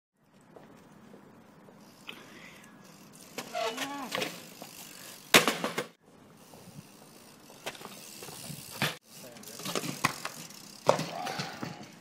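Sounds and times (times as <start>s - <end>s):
bike clattering on paving: 2.9s - 12.0s.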